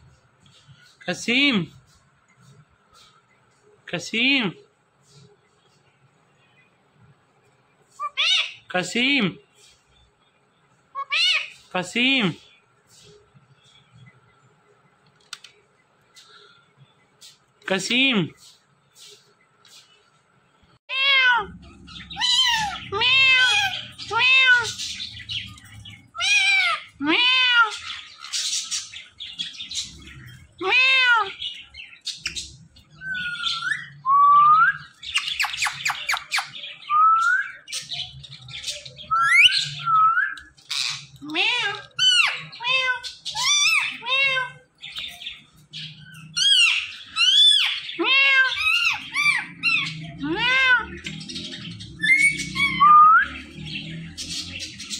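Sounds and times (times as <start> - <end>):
parakeet squawking: 8.0 - 8.7, 11.0 - 11.7, 20.9 - 34.0, 37.5 - 54.9.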